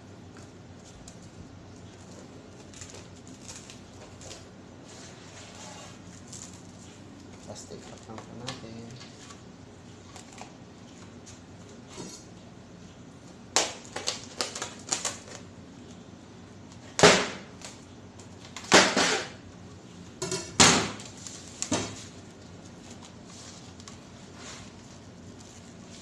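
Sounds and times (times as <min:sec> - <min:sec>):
cling wrap crackling and snapping: 0:00.4 - 0:04.5, 0:06.0 - 0:09.4, 0:13.5 - 0:16.0, 0:21.0 - 0:26.0.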